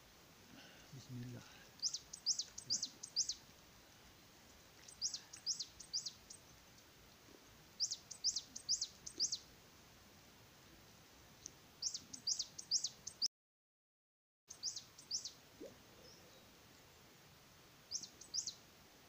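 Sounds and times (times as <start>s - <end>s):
small songbird singing: 0.8s - 6.9s, 7.7s - 9.5s, 11.8s - 13.3s, 14.5s - 17.1s, 17.8s - 18.7s.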